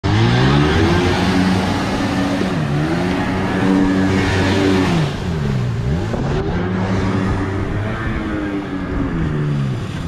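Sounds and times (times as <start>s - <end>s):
two-stroke boat engine: 0.0s - 10.0s
rushing water spray: 0.1s - 8.0s.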